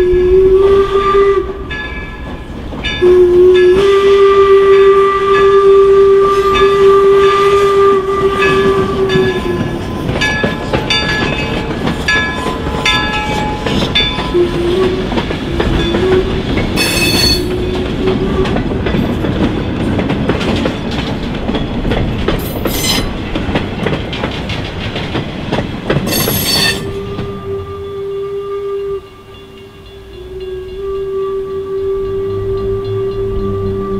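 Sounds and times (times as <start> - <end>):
steam locomotive whistle: 0.0 - 2.2, 3.0 - 19.0, 22.6 - 23.1, 26.1 - 33.9
train wheels clicking over rail joints: 7.8 - 27.4.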